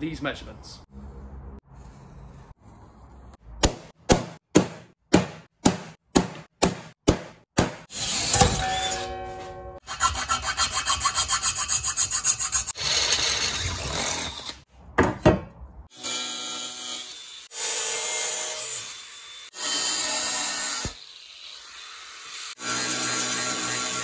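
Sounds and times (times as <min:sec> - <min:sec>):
sharp knocks: 0:03.6 - 0:07.9
saw cutting steel: 0:07.8 - 0:09.2, 0:09.8 - 0:14.7, 0:15.9 - 0:24.0
angle grinder cutting metal: 0:16.0 - 0:24.0
drill boring metal: 0:18.4 - 0:24.0.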